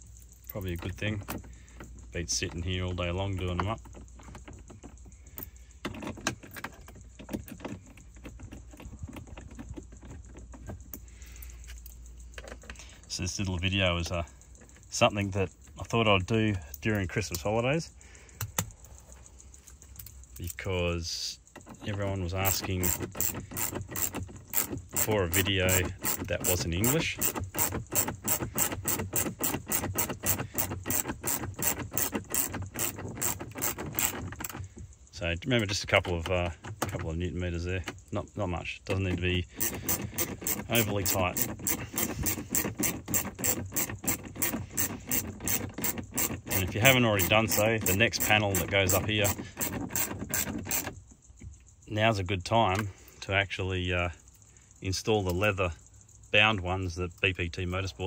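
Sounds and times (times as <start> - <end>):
ratcheting driver clicking: 21.4 - 35.0, 38.9 - 51.6.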